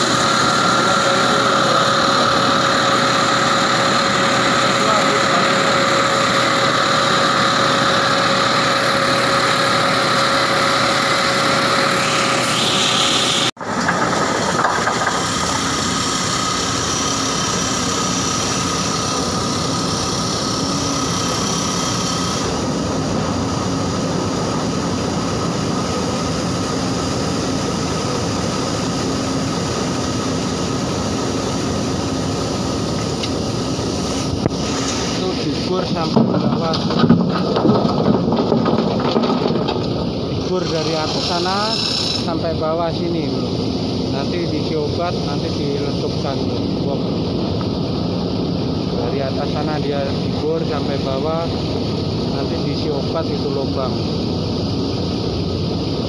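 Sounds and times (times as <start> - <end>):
drilling into rock: 0.0 - 24.9, 28.8 - 42.4
drill rig engine droning whine: 0.0 - 56.0.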